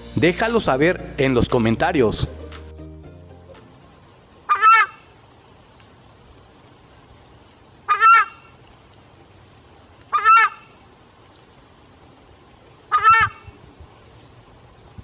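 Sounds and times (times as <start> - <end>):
bird honking call: 4.5 - 5.1, 7.9 - 8.4, 10.1 - 10.7, 12.9 - 13.5.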